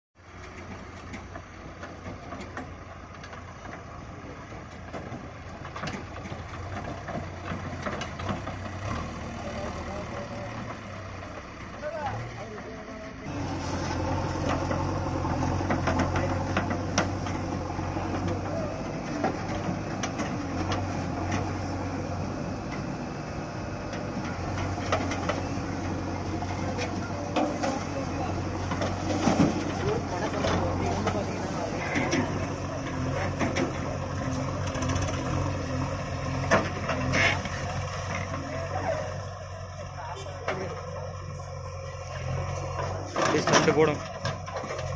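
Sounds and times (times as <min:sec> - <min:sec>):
diesel engine running: 0:00.2 - 0:44.9
knocks and rattles: 0:04.8 - 0:09.2, 0:14.0 - 0:21.7.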